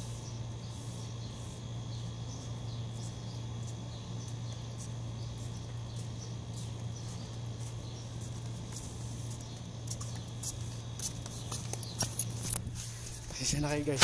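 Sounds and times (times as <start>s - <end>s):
broom sweeping concrete floor: 0.0s - 1.7s, 4.6s - 14.0s
steady low hum: 0.0s - 14.0s
flip-flop footsteps: 4.5s - 14.0s.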